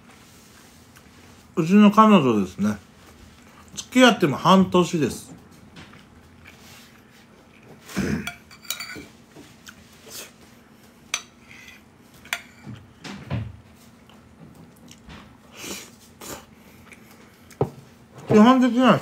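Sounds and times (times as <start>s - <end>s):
metal spoon clinking on plate: 8.3s - 9.1s.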